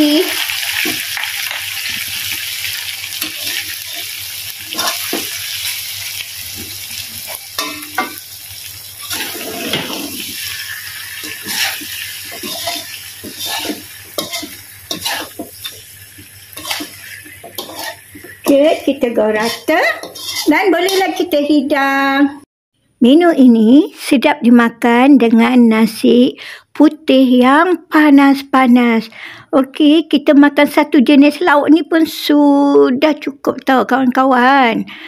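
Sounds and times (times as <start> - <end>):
food sizzling in a frying pan: 0.0 - 21.6
spatula scraping a pan: 3.2 - 8.2, 9.0 - 21.3.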